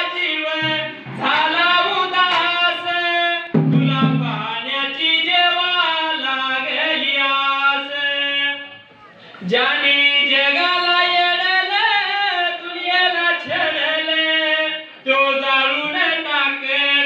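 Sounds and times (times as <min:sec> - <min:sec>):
man singing into microphone: 0:00.0 - 0:08.8, 0:09.4 - 0:17.0.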